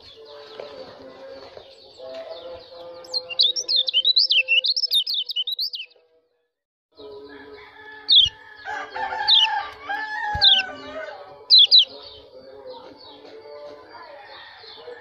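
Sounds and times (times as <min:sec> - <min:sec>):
bird chirping song: 0:00.0 - 0:06.4, 0:07.0 - 0:15.0.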